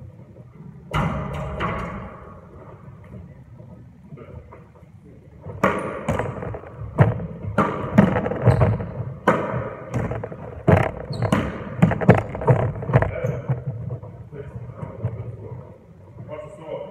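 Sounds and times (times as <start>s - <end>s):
shoes squeaking on wooden floor: 8.0s - 9.2s, 9.9s - 14.1s.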